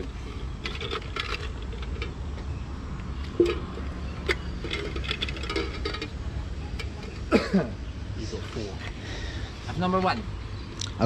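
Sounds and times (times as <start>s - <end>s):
tokens rattling in a tin can: 0.4s - 2.3s, 3.2s - 7.3s.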